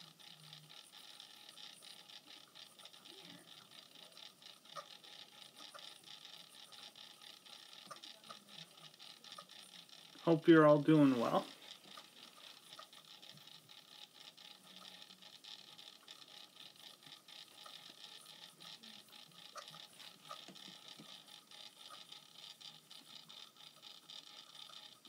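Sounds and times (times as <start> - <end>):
faint ticks: 0.0 - 10.4.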